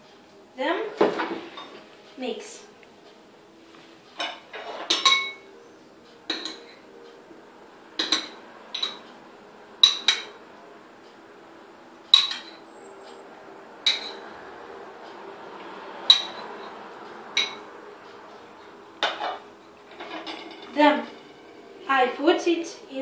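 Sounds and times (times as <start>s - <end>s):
utensil clinking on ceramic bowl: 8.0s - 9.0s.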